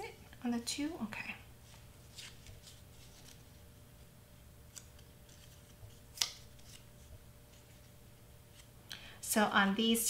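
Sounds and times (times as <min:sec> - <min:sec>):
paper rustling: 0:01.6 - 0:03.8, 0:04.7 - 0:08.7.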